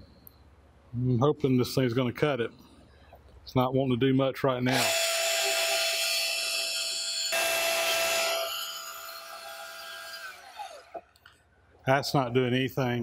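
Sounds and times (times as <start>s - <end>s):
band saw cutting metal: 4.7s - 11.0s.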